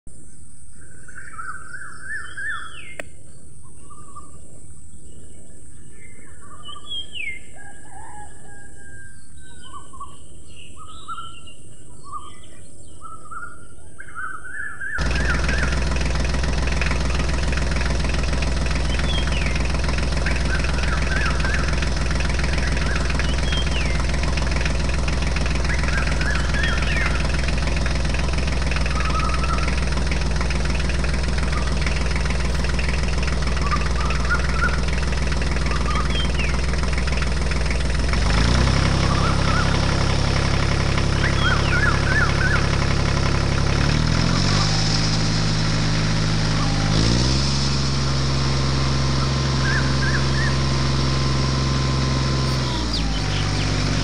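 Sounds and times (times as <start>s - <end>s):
birds chirping and calling: 0.3s - 43.7s, 46.5s - 47.2s, 49.1s - 51.0s, 52.4s - 54.0s
tractor engine idling: 15.0s - 54.0s.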